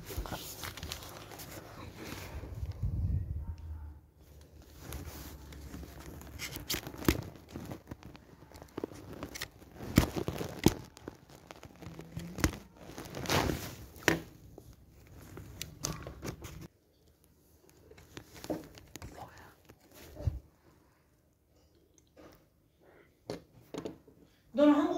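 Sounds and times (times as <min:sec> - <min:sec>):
plastic crinkling: 0:00.0 - 0:02.8, 0:04.3 - 0:20.6.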